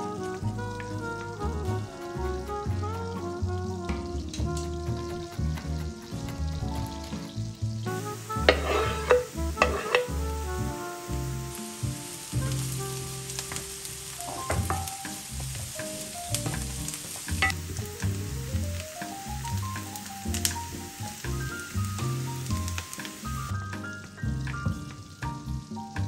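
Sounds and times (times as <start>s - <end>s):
background music: 0.0s - 26.0s
food sizzling in a pan: 0.0s - 26.0s
stirring scrapes: 7.9s - 10.2s, 14.2s - 15.7s.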